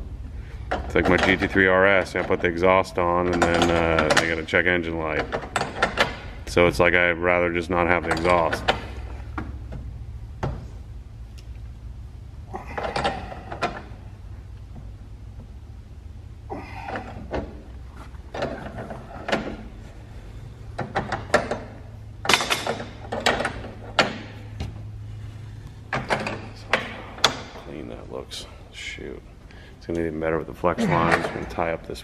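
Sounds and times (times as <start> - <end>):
steady low hum: 0.0 - 32.0
pipe fittings clicking and scraping: 0.6 - 6.6.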